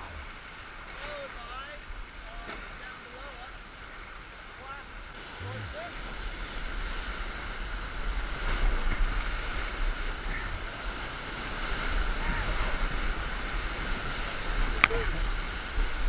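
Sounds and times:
churning whitewater hiss: 0:00.0 - 0:16.0
wind rumble on microphone: 0:05.2 - 0:16.0.

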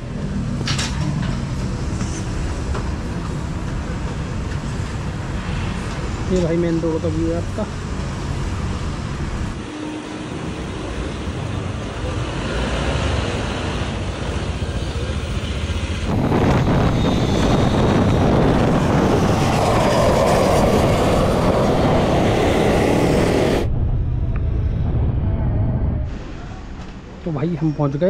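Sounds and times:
vehicle and road rumble: 0:00.0 - 0:28.0.

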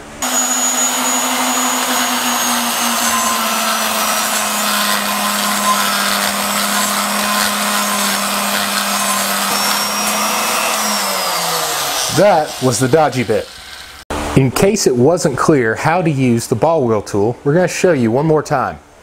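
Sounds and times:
die grinder grinding metal: 0:00.0 - 0:14.0.

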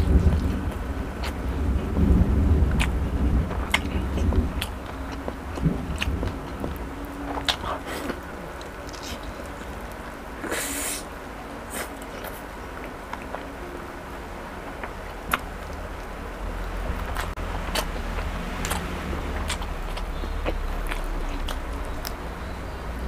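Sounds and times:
low steady rumble: 0:00.0 - 0:10.4, 0:11.1 - 0:23.0
chewing and lip smacks: 0:17.0 - 0:22.2.

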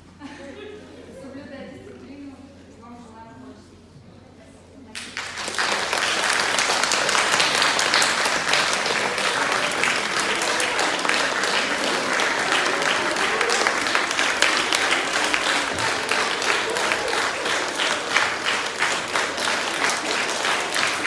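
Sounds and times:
audience applauding: 0:05.0 - 0:21.0.

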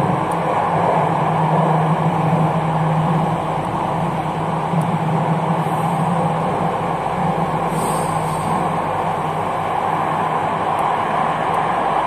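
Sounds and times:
steady low hum: 0:00.0 - 0:12.0
train wheels rumbling on rail: 0:00.0 - 0:12.0.

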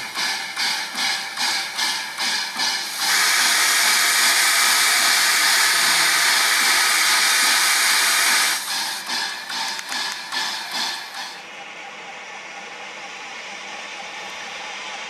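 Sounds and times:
steam locomotive venting steam: 0:00.0 - 0:11.5
steam locomotive chuffing: 0:00.0 - 0:15.0.

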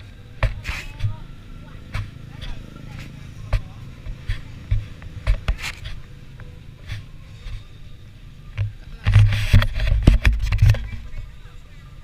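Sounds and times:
knocks and rubs on camera: 0:03.5 - 0:06.0, 0:08.6 - 0:11.3
camera handling rumble: 0:08.6 - 0:11.1.

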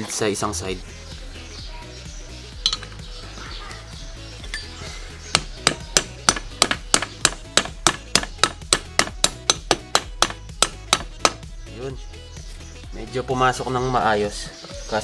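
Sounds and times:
background music with low beat: 0:00.0 - 0:15.0
hammer tapping metal: 0:05.4 - 0:11.4.

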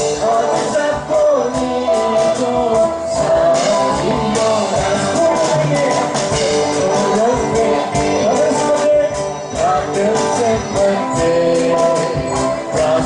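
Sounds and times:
women singing together: 0:00.0 - 0:06.1
electric and acoustic guitars: 0:00.0 - 0:13.0.

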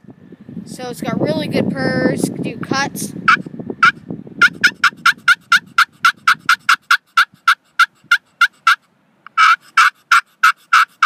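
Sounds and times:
turkey call clucks: 0:03.3 - 0:11.0
turkey call long note: 0:03.3 - 0:11.0.

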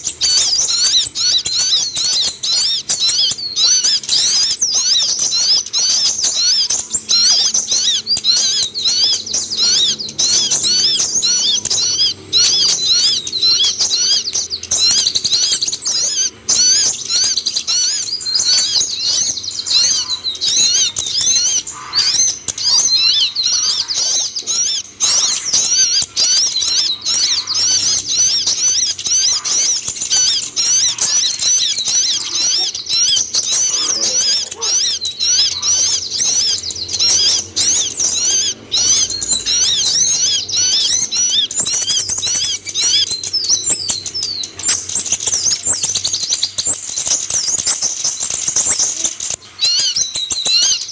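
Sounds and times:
bird chirping rapidly: 0:00.0 - 0:50.9.

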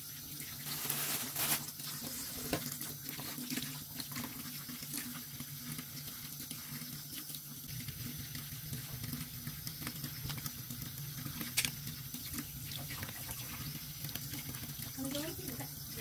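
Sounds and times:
water running in a sink: 0:00.0 - 0:16.0.

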